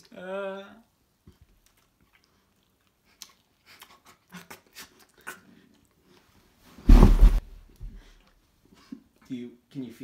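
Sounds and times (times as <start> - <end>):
chewing and mouth smacks: 1.2 - 6.2.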